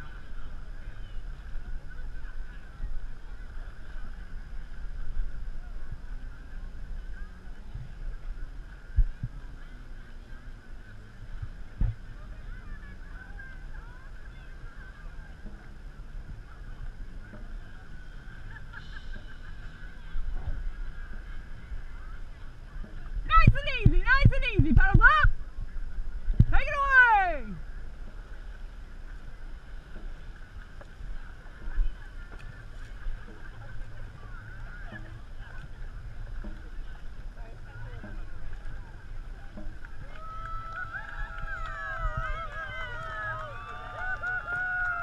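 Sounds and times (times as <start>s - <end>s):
water washing along boat hull: 0.0s - 45.0s
wind rumble on microphone: 0.0s - 45.0s
distant crowd cheering: 37.6s - 45.0s.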